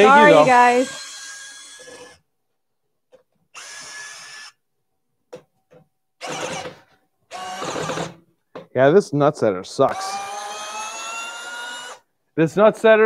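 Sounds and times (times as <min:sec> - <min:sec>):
cordless screwdriver motor running: 0:00.0 - 0:02.2, 0:03.6 - 0:04.6, 0:06.2 - 0:06.7, 0:07.3 - 0:08.2, 0:09.9 - 0:12.0.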